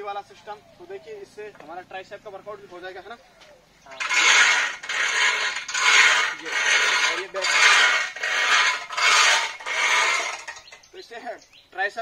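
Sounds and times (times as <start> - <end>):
rope pulley rasping whirr: 3.9 - 10.8.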